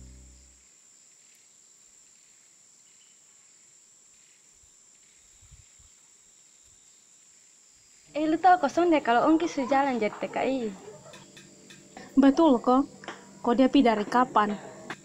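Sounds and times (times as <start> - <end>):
faint low bumps: 0.0 - 0.6
thin high-pitched hum: 0.0 - 0.7.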